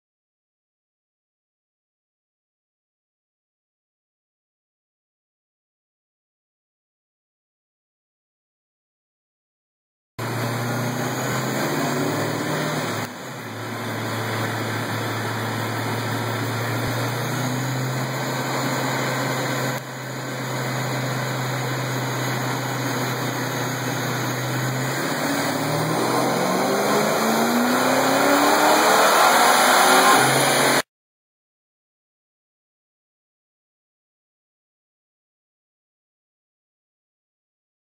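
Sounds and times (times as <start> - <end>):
supercharged car engine revving: 10.2 - 30.9.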